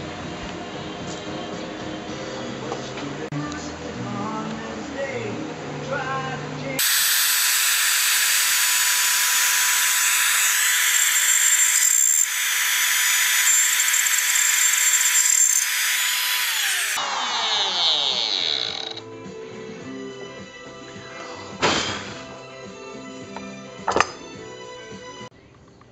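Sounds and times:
router whining cutting wood: 6.8 - 19.0.

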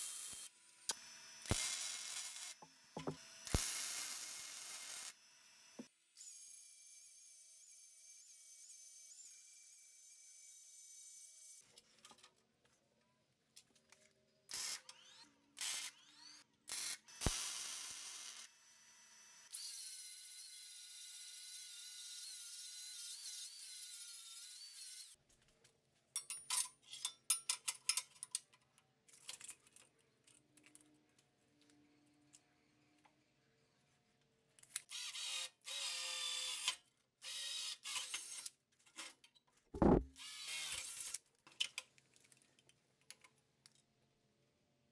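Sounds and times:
loud thump: 39.8 - 40.1
steel tubing knocking on table: 39.8 - 40.1.

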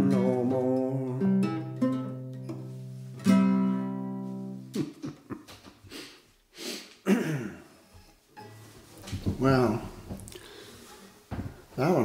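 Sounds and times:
acoustic guitar chords: 0.0 - 5.4.

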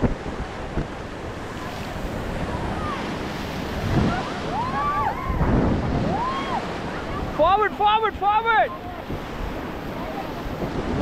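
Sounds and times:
river rapids rushing: 0.0 - 11.0
wind buffeting microphone: 0.0 - 11.0
people shouting: 4.1 - 6.7.

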